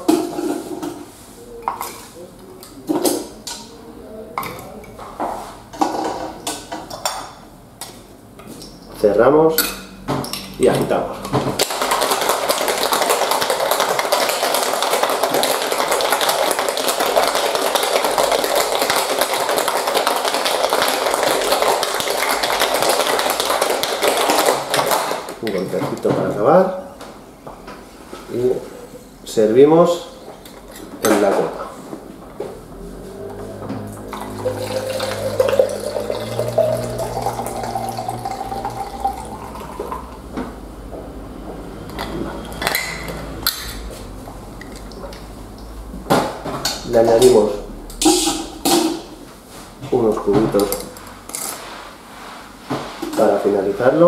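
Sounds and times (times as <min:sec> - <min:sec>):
ice rattling in cocktail shaker: 0:11.6 - 0:25.2, 0:34.1 - 0:40.1
drink pouring into glass: 0:34.1 - 0:40.3.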